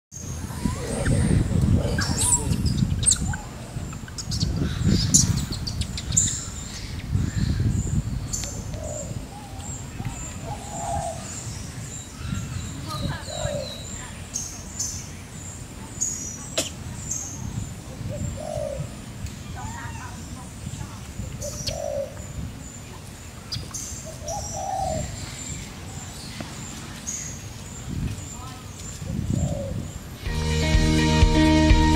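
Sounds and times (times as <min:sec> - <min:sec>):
birds chirping and whistling: 0:00.2 - 0:15.1, 0:21.4 - 0:22.4, 0:23.5 - 0:30.0
dove cooing: 0:00.6 - 0:02.6, 0:18.0 - 0:18.9, 0:21.4 - 0:22.2, 0:24.1 - 0:25.2, 0:29.2 - 0:29.9.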